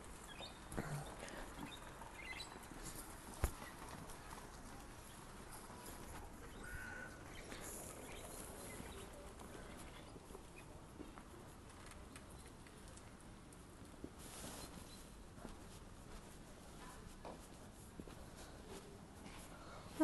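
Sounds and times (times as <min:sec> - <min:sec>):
faint street ambience: 0:00.0 - 0:20.0
footsteps on paving stones: 0:13.8 - 0:19.5.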